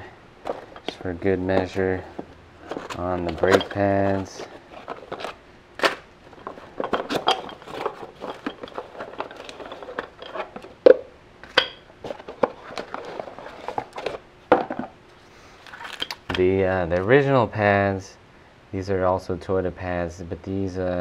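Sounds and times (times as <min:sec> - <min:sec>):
cardboard rustling and scraping: 0:00.0 - 0:10.8, 0:12.0 - 0:14.9.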